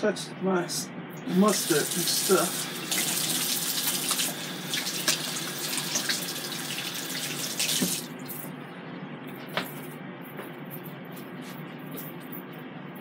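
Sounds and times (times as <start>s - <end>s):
faucet water splashing: 1.4s - 8.1s.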